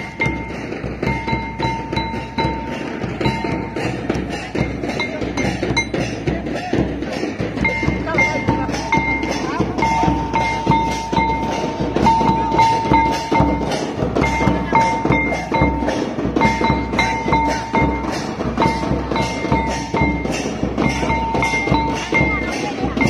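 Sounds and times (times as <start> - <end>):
folk drumming: 0.0 - 23.0
metallic bell ringing: 0.0 - 23.0.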